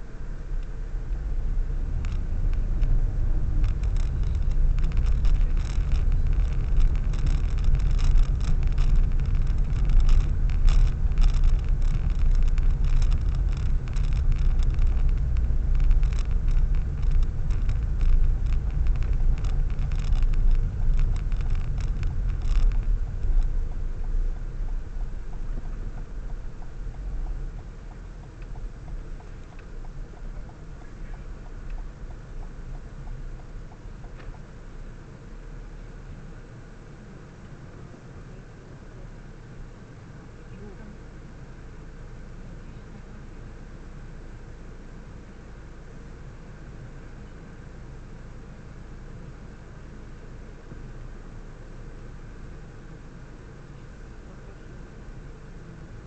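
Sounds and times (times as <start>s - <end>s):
car engine and road rumble: 0.0s - 56.0s
small clicks and rattles: 1.8s - 34.9s.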